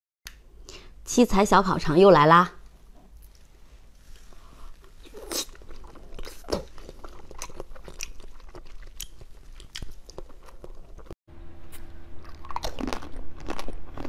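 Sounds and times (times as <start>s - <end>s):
chewing jelly sweets: 2.6s - 11.2s, 12.2s - 14.0s.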